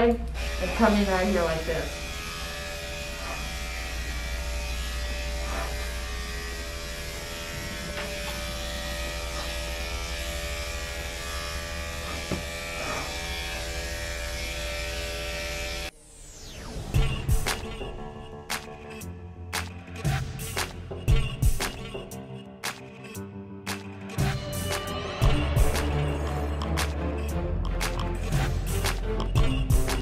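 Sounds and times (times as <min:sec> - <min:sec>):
electric clipper buzzing: 0:00.0 - 0:15.9, 0:24.2 - 0:26.0.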